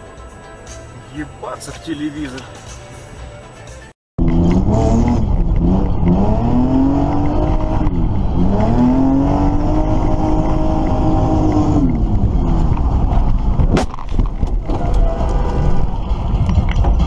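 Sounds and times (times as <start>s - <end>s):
car engine revving: 4.2s - 17.0s.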